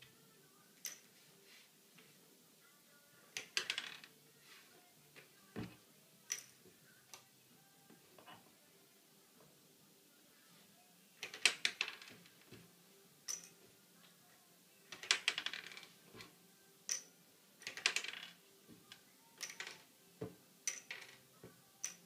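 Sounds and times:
plastic bricks clicking: 3.4 - 4.1, 11.2 - 12.2, 14.9 - 15.9, 16.9 - 18.4, 19.4 - 19.8, 20.7 - 21.1.

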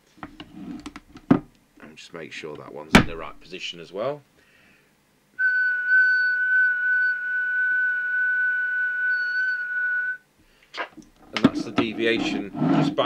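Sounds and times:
high-pitched test tone: 5.4 - 10.2.

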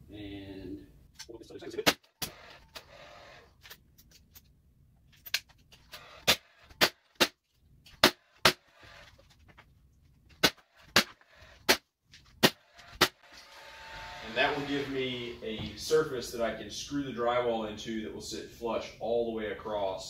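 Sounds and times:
brad nailer firing: 1.8 - 3.4, 5.9 - 9.1, 10.4 - 11.8, 12.4 - 15.3.

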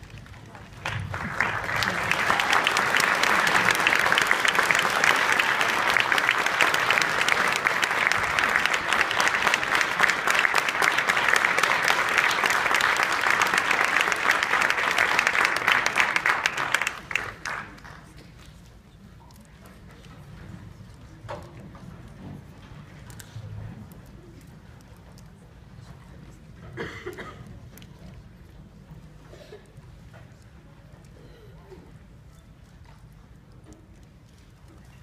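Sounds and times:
audience applauding: 0.0 - 18.2.

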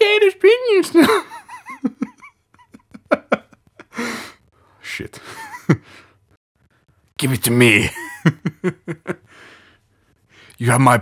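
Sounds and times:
person breathing: 3.9 - 7.0, 9.2 - 10.6.

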